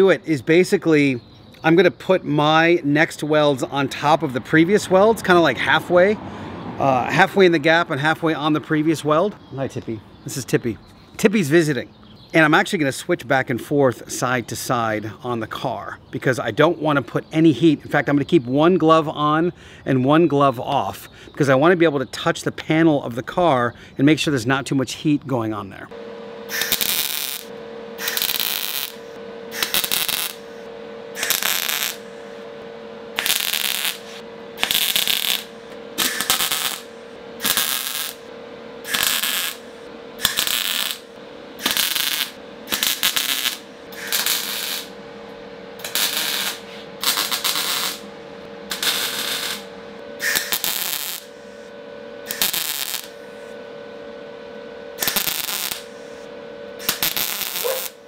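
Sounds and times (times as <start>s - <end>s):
steady hum: 0.0s - 58.0s
welding arc bursts: 26.4s - 45.0s, 45.8s - 48.1s, 48.7s - 53.5s, 55.0s - 58.0s.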